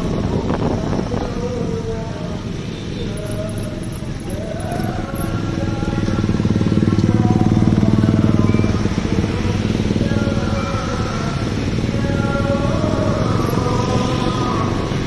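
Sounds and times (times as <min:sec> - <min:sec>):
scooter and motorcycle engines: 0:00.0 - 0:15.0.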